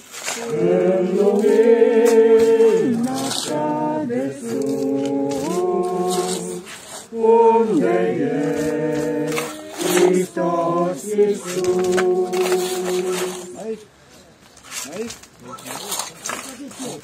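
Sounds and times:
voices singing in harmony: 0:00.2 - 0:13.8.

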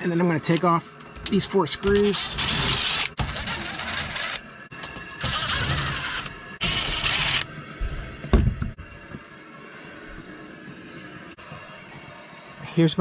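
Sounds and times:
cordless drill running: 0:02.4 - 0:04.4, 0:05.2 - 0:07.5.

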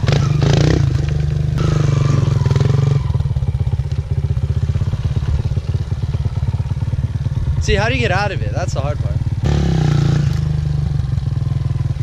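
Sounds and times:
dirt bike engine idling: 0:00.0 - 0:12.0.

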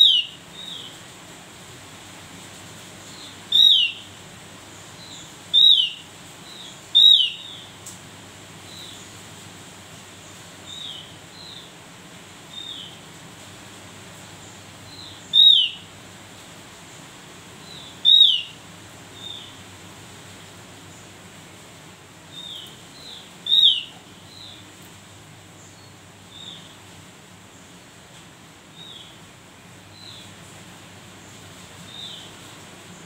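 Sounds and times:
bird calling high notes: 0:18.0 - 0:18.6.

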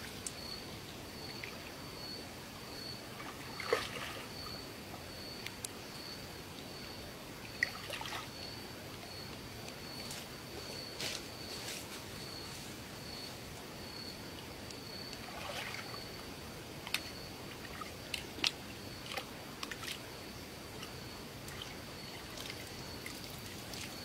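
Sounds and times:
water splashing and sloshing: 0:02.9 - 0:05.6, 0:07.4 - 0:13.6, 0:14.4 - 0:24.0.

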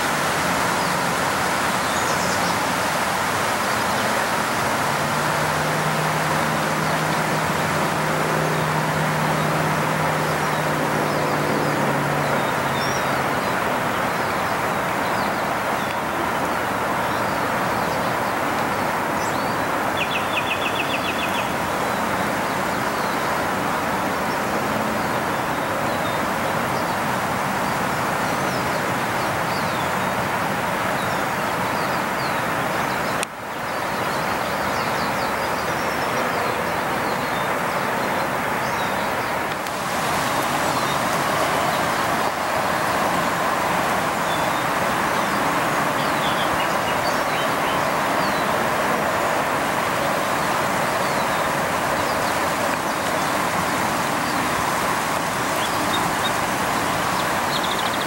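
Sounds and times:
low engine hum: 0:00.0 - 0:58.0
road traffic rushing: 0:00.0 - 0:58.0
bird chirps: 0:57.2 - 0:58.0.

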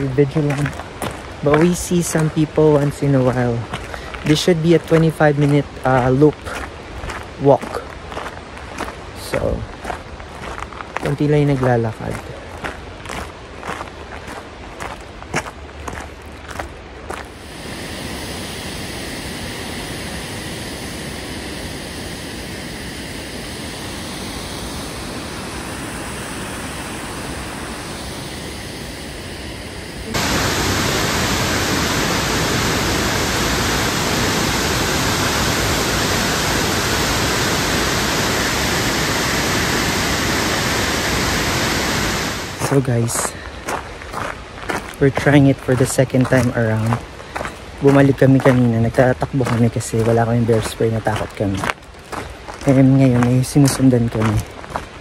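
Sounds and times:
waterfall rushing: 0:17.2 - 0:43.4.

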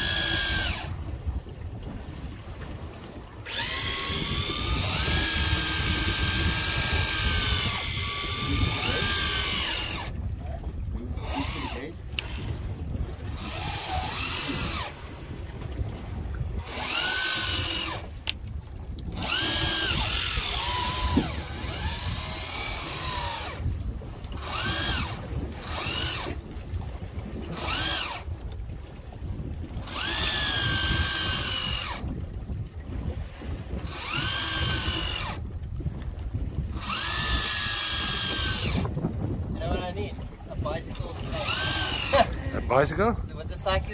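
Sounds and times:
fishing reel motor whine: 0:00.0 - 0:01.2, 0:03.4 - 0:12.3, 0:13.2 - 0:15.4, 0:16.2 - 0:18.4, 0:19.0 - 0:26.7, 0:27.4 - 0:28.8, 0:29.8 - 0:32.4, 0:33.7 - 0:35.9, 0:36.5 - 0:40.0, 0:41.0 - 0:42.8.

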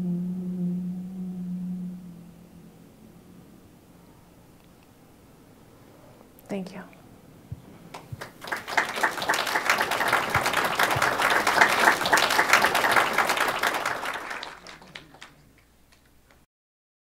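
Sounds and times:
audience applauding: 0:07.9 - 0:16.4.

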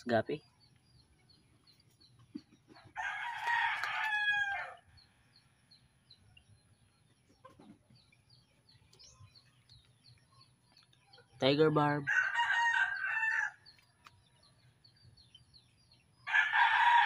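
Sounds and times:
rooster crowing: 0:03.0 - 0:04.8, 0:12.1 - 0:13.6, 0:16.3 - 0:17.0.

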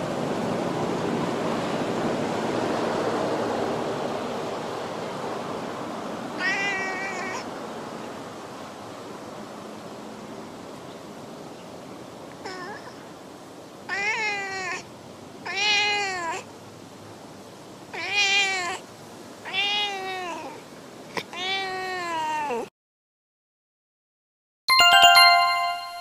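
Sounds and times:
cat meowing: 0:06.4 - 0:07.5, 0:12.4 - 0:13.0, 0:13.9 - 0:14.8, 0:15.4 - 0:16.4, 0:17.9 - 0:18.8, 0:19.4 - 0:20.6, 0:21.2 - 0:22.7.

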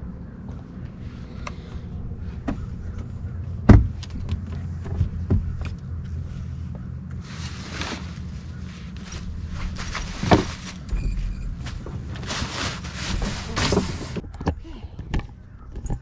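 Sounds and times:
steady low hum: 0:00.0 - 0:16.0
knocks and thumps of climbing: 0:02.2 - 0:07.2, 0:09.0 - 0:16.0.

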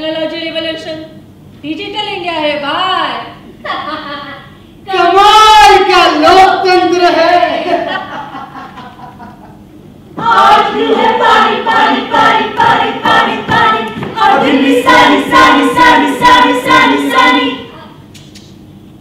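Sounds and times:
group singing in unison: 0:10.2 - 0:17.7.

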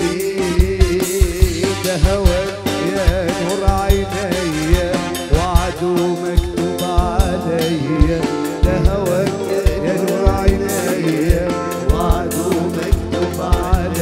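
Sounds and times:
instrumental backing: 0:00.0 - 0:14.0
steady drum beat: 0:00.0 - 0:14.0
man singing ornamented melody: 0:05.3 - 0:14.0.

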